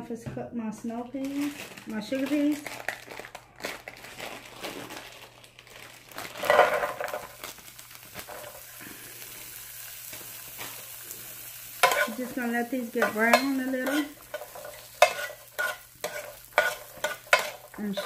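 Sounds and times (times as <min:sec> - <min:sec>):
plastic bag crinkling: 0:01.2 - 0:09.0, 0:10.0 - 0:18.0
peas sizzling: 0:01.2 - 0:18.0
peas clattering into skillet: 0:06.3 - 0:18.0.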